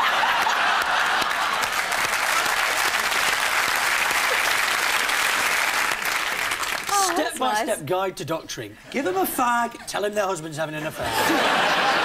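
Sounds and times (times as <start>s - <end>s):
audience laughing: 0.0s - 2.0s, 10.9s - 12.0s
audience applauding: 0.0s - 7.5s.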